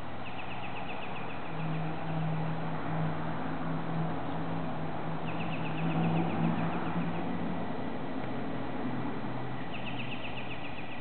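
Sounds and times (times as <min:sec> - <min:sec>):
low engine-like drone: 0:00.0 - 0:11.0
songbird trilling: 0:00.2 - 0:01.9, 0:05.2 - 0:07.3, 0:09.7 - 0:11.0.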